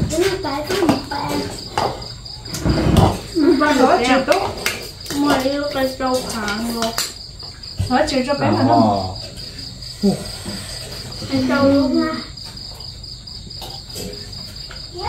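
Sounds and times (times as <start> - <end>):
insects chirring: 0.0 - 15.0
person calling out: 8.4 - 9.2.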